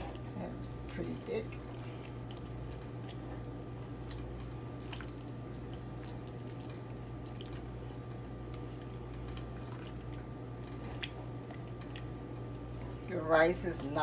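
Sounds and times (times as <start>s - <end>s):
steady low hum: 0.0s - 14.0s
thick soup stirred in pot: 0.0s - 14.0s.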